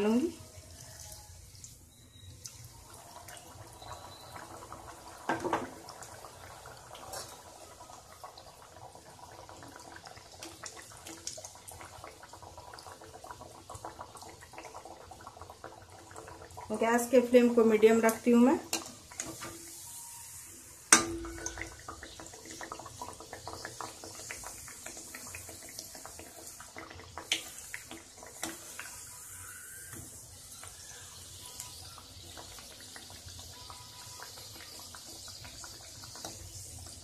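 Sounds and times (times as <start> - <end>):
dough sizzling in hot oil: 0.0 - 37.0
metal spoon clinking on pan: 20.9 - 21.6.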